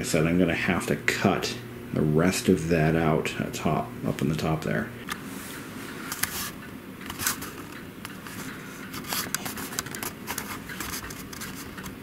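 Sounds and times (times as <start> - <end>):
camera handling noise: 6.1 - 12.0.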